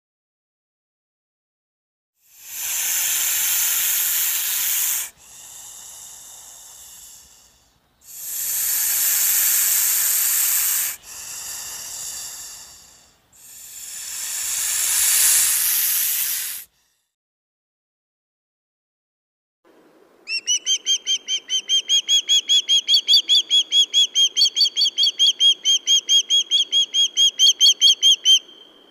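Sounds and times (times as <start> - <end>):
snake hissing: 2.2 - 17.1.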